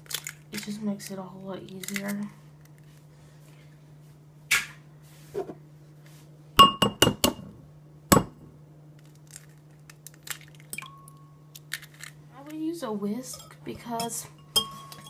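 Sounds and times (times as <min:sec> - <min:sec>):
egg knocking on ceramic bowl: 0:06.6 - 0:07.4
bowl ringing: 0:10.8 - 0:11.5, 0:13.3 - 0:15.0.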